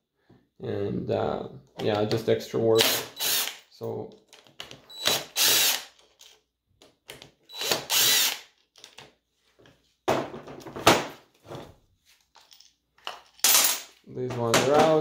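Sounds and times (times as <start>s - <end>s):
cordless drill backing out screws: 7.2s - 8.9s.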